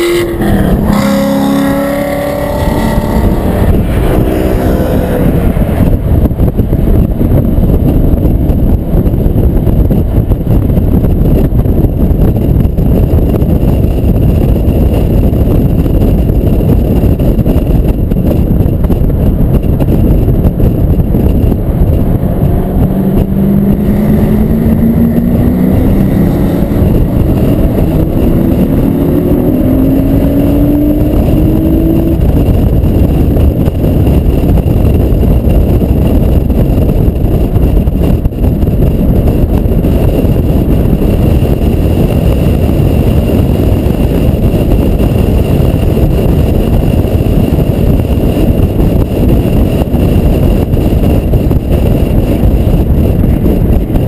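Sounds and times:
car engine accelerating: 0.0 - 7.6, 18.2 - 38.4
wind rumble on microphone: 0.0 - 54.0.

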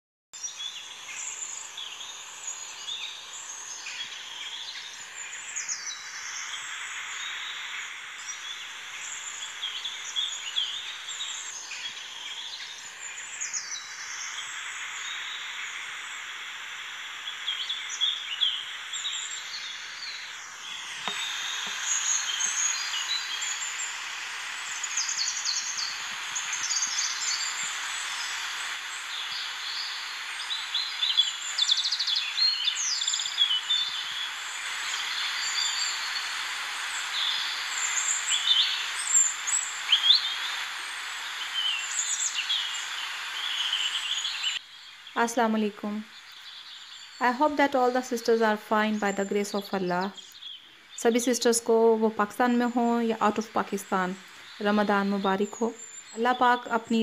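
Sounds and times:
birds chirping: 0.4 - 57.0
steady hiss: 0.4 - 57.0.

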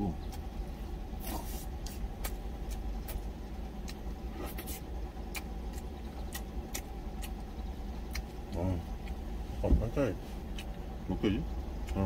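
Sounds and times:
chewing clicks: 1.8 - 9.2, 10.5 - 10.8.

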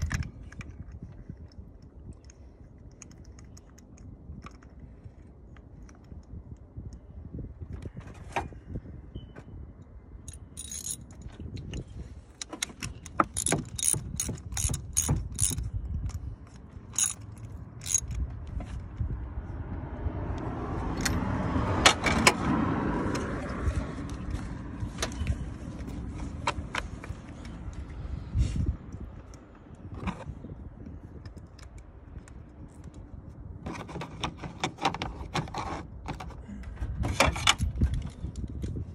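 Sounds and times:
metal tool clicking and clinking: 10.3 - 11.8, 12.8 - 18.3.

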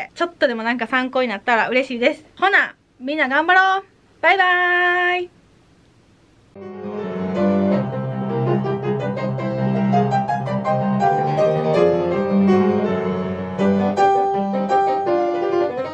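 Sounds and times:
solo classical piano: 6.6 - 15.9.

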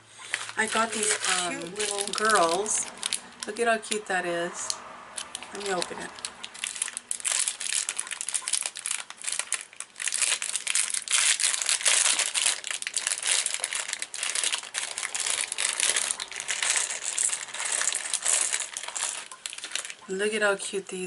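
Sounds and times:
plastic bag crinkling: 0.2 - 4.0, 5.2 - 20.4.

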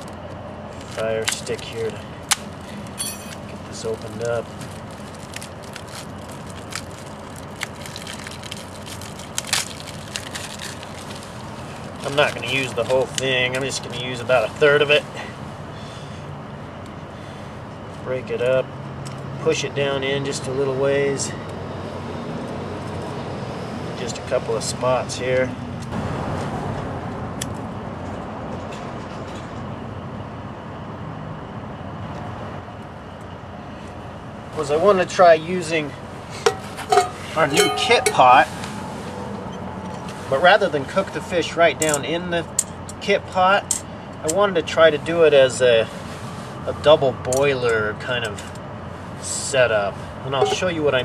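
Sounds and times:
outdoor background rumble: 0.0 - 51.0
plastic wrapper crinkling: 4.0 - 13.0.

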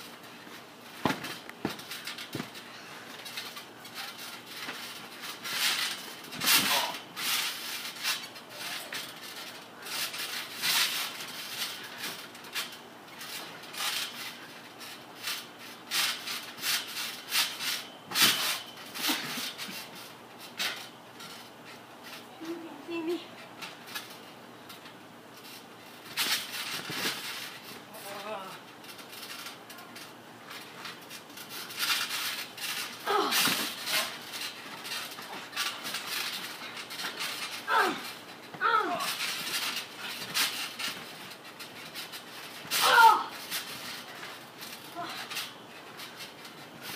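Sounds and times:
scuffling on a trampoline: 0.0 - 46.9
heavy thump on trampoline mat: 1.0 - 2.6.

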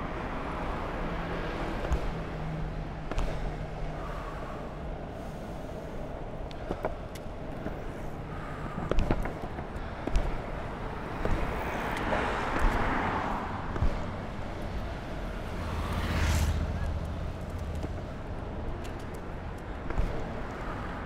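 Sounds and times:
skateboard wheels rolling on asphalt: 0.0 - 21.0
street traffic: 0.0 - 21.0
wheels clicking over joints: 16.8 - 21.0.

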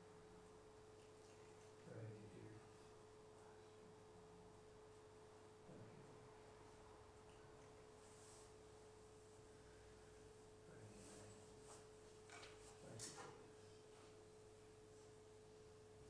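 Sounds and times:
faint steady hum: 0.0 - 16.0
faint shuffles and taps: 10.9 - 14.2.

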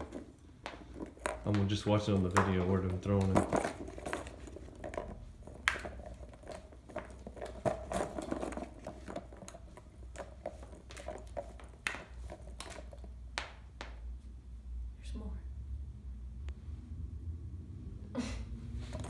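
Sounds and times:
plastic balls clicking and tapping: 0.0 - 14.1.

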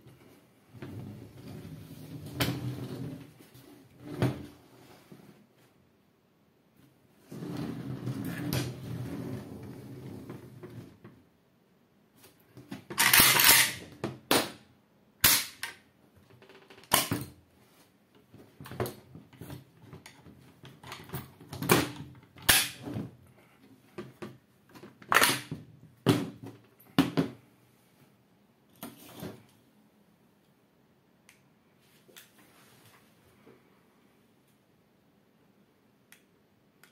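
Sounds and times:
metal bayonet scraping: 13.0 - 13.8.

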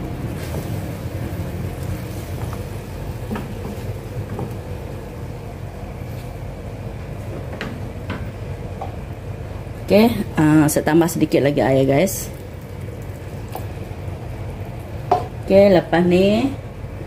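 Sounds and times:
spatula tapping pan: 15.0 - 15.4.

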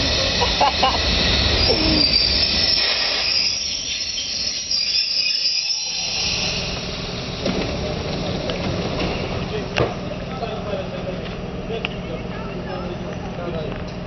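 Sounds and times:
train hiss with high whine: 0.0 - 10.5
train low rumble: 0.0 - 14.0.

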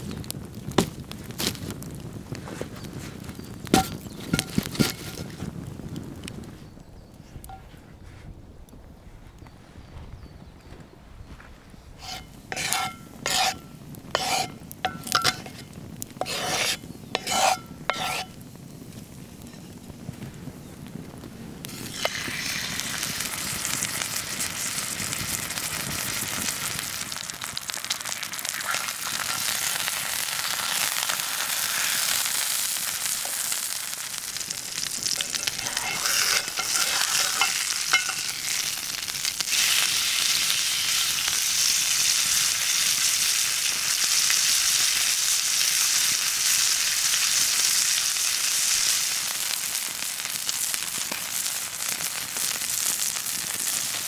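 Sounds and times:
steak sizzling in a pan: 12.0 - 18.4, 21.7 - 54.0.

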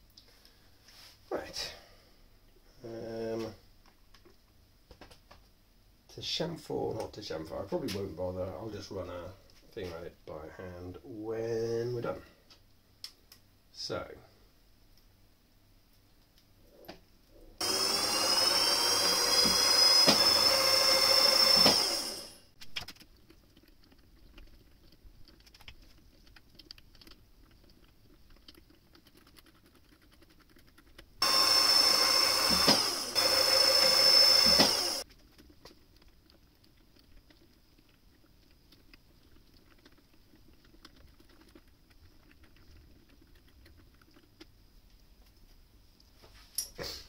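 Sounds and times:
drill motor whine: 17.6 - 22.5, 31.2 - 35.0.

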